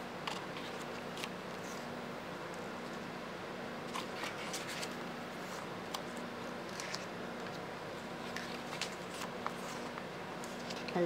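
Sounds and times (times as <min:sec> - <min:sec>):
background hum: 0:00.0 - 0:11.0
pages turning: 0:00.2 - 0:01.9, 0:03.9 - 0:11.0.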